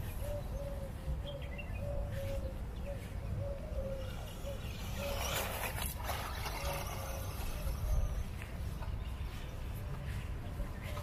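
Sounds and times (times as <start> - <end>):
doves cooing: 0.0 - 8.8
wind rumble on microphone: 0.0 - 11.0
toy car running through grass: 4.0 - 8.9.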